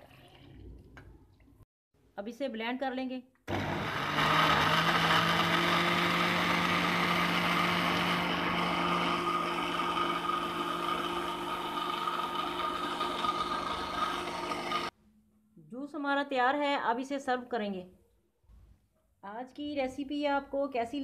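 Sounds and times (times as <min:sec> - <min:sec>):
kitchen blender running: 0:03.5 - 0:14.9.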